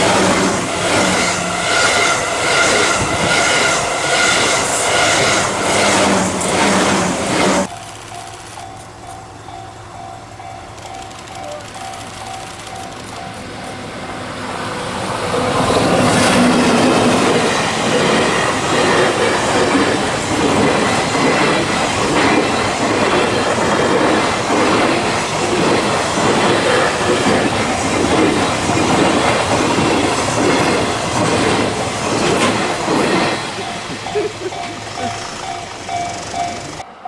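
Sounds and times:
freight train rolling past: 0.0s - 37.0s
wheels clattering over rail joints: 16.0s - 37.0s.

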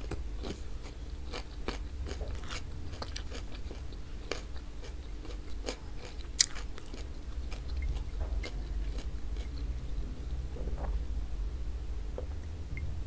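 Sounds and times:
person chewing food: 0.0s - 9.9s
steady low hum: 0.0s - 13.0s.

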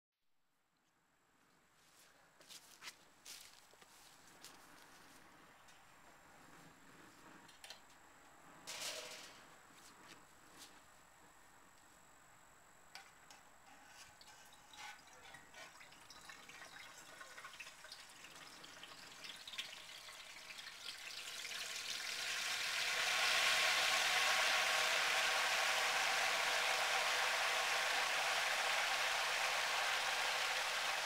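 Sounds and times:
hot oil sizzling: 14.2s - 31.0s
oil popping and crackling: 14.2s - 31.0s.

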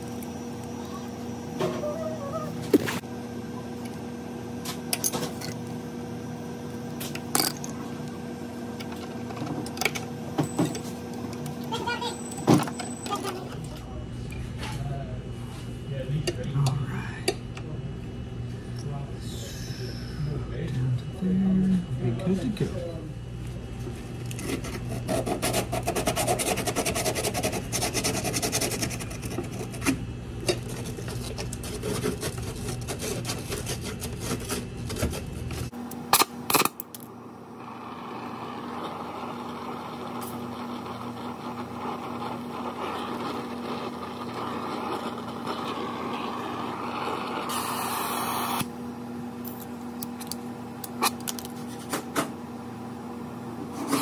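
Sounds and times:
steady low hum: 0.0s - 54.0s
tools and copper tubing scraping: 24.2s - 35.7s
brazing torch flame hissing: 37.6s - 48.7s.

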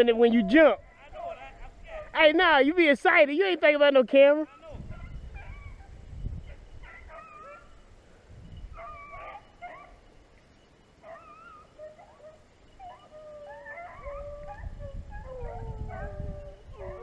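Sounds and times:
dogs baying: 4.6s - 7.9s, 8.7s - 10.1s, 11.0s - 17.0s.

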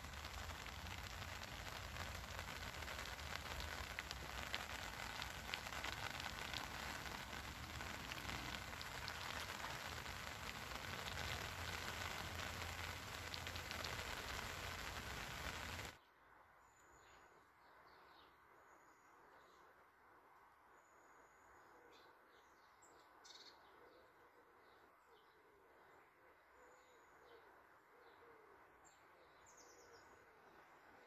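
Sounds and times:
rain falling on lake: 0.0s - 16.0s.

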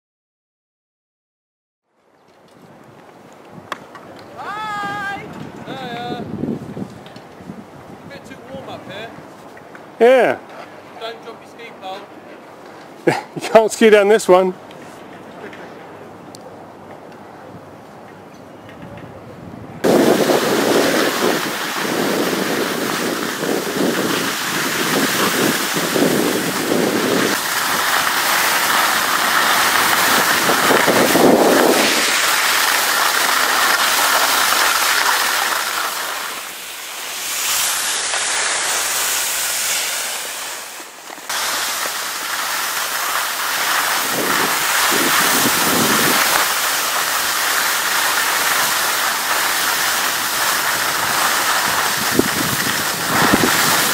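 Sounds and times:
wind rushing over microphone: 4.3s - 9.4s, 18.8s - 33.3s, 43.7s - 46.6s, 50.3s - 53.9s
skis scraping on snow: 19.8s - 53.9s.

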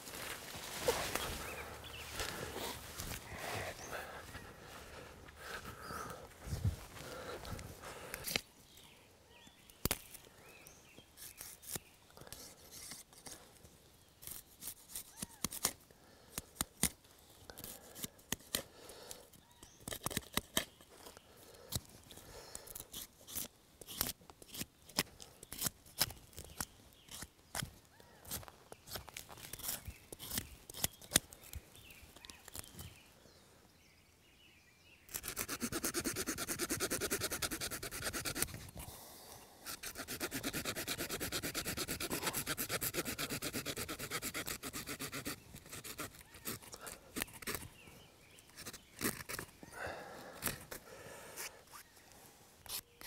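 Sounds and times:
blade shaving wood: 28.3s - 31.2s, 35.1s - 38.8s, 39.6s - 47.7s
tool rasping wood: 35.1s - 38.6s, 39.6s - 46.8s.

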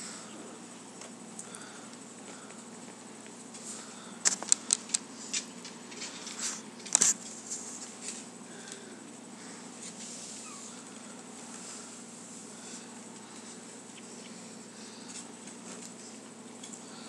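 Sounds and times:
puppies scuffling in wire crate: 5.2s - 8.4s.

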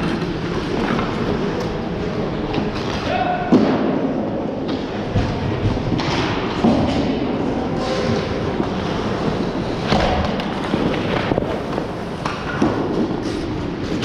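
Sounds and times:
hockey sticks and puck clacking: 0.0s - 14.0s
skate blades scraping ice: 7.8s - 14.0s.

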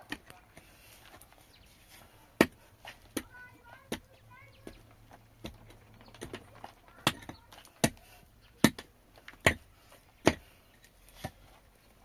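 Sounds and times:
tool chopping wood: 2.4s - 11.5s.

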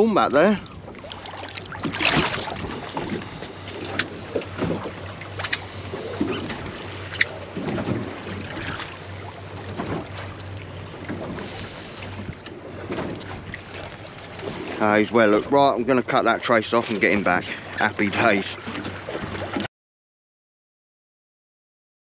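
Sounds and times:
steady low hum: 0.0s - 17.6s
lapping water: 0.4s - 7.4s
water splash: 1.0s - 12.3s.

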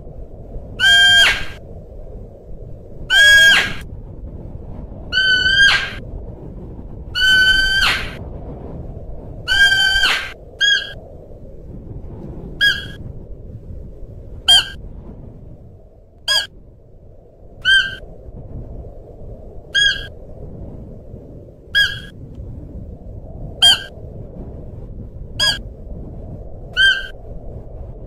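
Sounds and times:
deer high-pitched calls: 0.8s - 1.6s, 3.1s - 3.8s, 5.2s - 6.0s, 7.2s - 8.2s, 9.5s - 11.0s, 17.6s - 18.0s, 26.8s - 27.1s.

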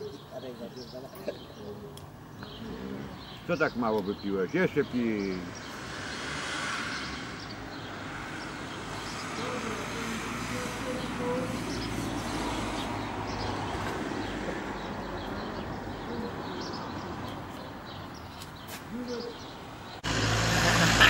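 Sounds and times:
pigeons cooing: 0.0s - 4.2s, 7.7s - 18.0s, 18.6s - 19.6s
small birds chirping: 0.0s - 21.0s.

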